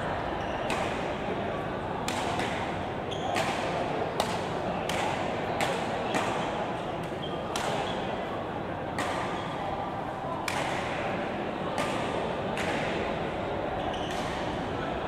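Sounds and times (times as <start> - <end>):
background murmur: 0.0 - 15.0
rackets striking shuttlecock: 0.6 - 1.2, 2.0 - 8.0, 10.4 - 11.1, 11.8 - 13.0, 14.0 - 14.6.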